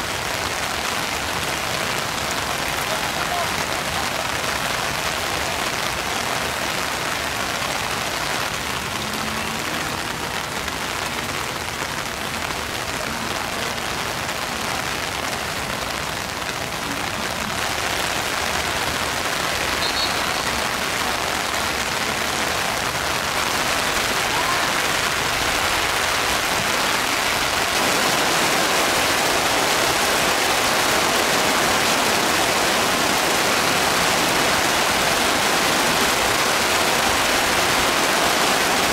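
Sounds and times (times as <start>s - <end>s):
heavy rain pouring: 0.0s - 38.9s.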